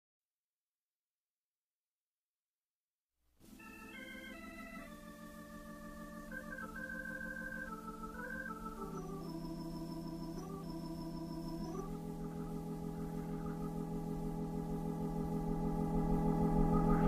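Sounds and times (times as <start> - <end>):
organ playing slow blues: 3.5 - 17.0.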